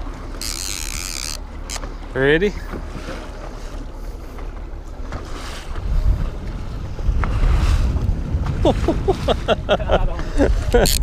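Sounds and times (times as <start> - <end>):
waves washing against boat hull: 0.0 - 11.0
wind buffeting microphone: 4.1 - 11.0.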